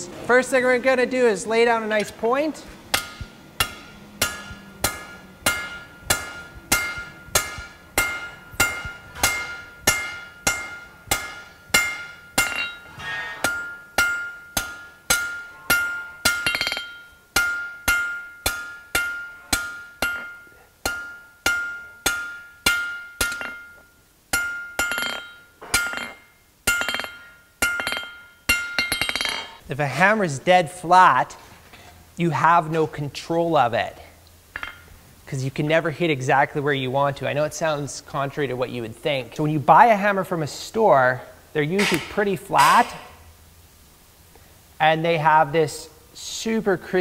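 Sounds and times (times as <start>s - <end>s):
hammer striking metal on anvil: 2.9s - 29.6s, 34.6s - 34.9s, 41.8s - 43.2s.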